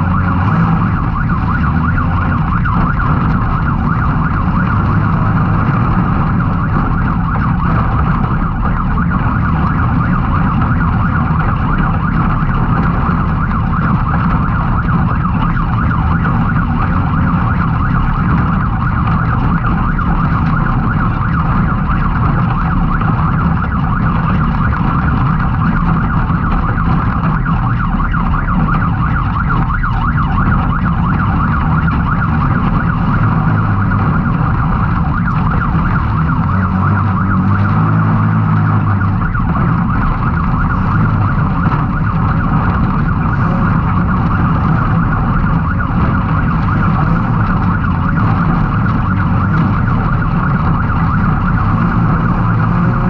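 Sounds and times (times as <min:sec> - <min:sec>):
engine revving: 0:00.0 - 0:06.9, 0:35.2 - 0:39.8, 0:51.5 - 0:53.0.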